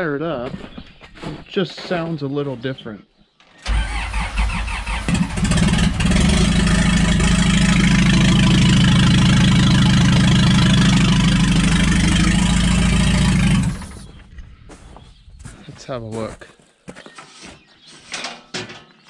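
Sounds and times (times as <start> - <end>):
telehandler engine running: 3.7 - 14.2.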